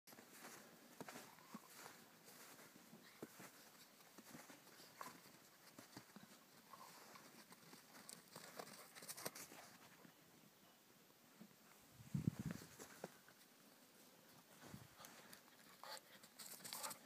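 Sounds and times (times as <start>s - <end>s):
footsteps crunching in snow: 0.1s - 8.6s.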